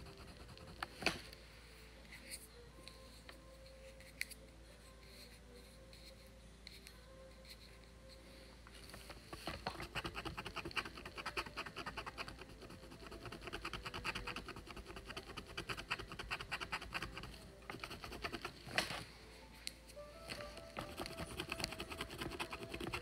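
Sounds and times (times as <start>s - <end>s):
stylus scratching board: 0.0s - 1.2s, 9.4s - 18.7s, 20.8s - 23.0s.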